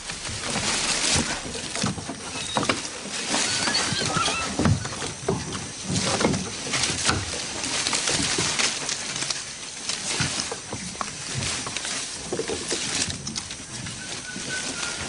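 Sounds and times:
leafy branches rustling and snapping: 0:00.0 - 0:15.0
short animal calls: 0:03.4 - 0:04.6.

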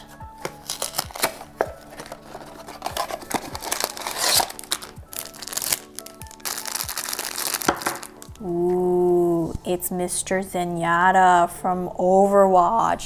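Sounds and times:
cardboard box opening: 0:00.4 - 0:05.8
foil bag crinkling and tearing: 0:00.4 - 0:08.3.

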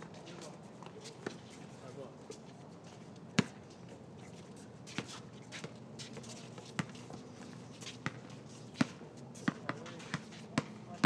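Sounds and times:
basketball bouncing on hard surface: 0:08.0 - 0:10.8.

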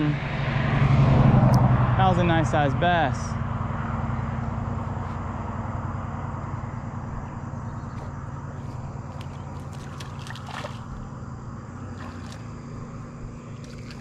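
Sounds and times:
car passing rumble: 0:00.0 - 0:14.0
light splashes at water surface: 0:09.0 - 0:11.1, 0:11.9 - 0:12.5, 0:13.6 - 0:14.0.

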